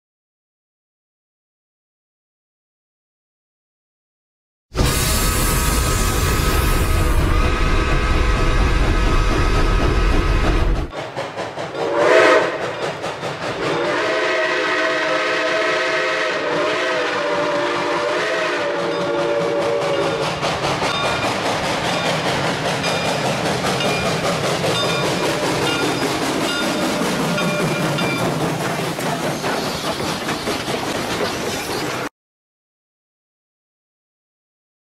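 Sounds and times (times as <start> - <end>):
steam locomotive whistle: 4.8 - 9.6, 11.7 - 12.8, 13.6 - 20.4, 24.8 - 27.8
train wheels clicking over rail joints: 4.8 - 14.4, 17.6 - 32.1.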